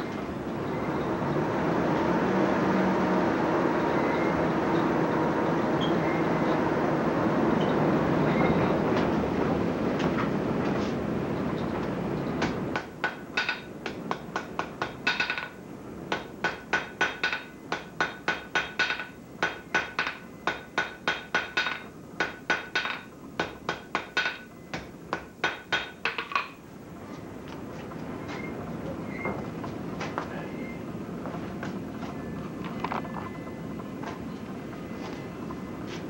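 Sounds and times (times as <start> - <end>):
hammer striking iron on anvil: 12.4 - 26.6.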